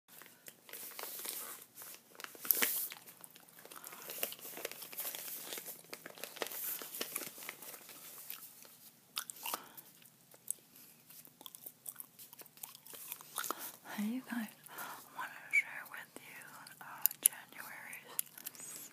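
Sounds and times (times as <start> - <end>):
paper envelope crinkling: 0.1 - 9.0
gum chewing: 9.1 - 13.8, 18.1 - 18.9.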